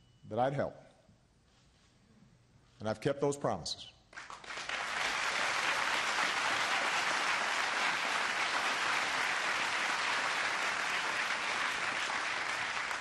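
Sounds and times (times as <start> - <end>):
large audience applauding: 4.2 - 13.0.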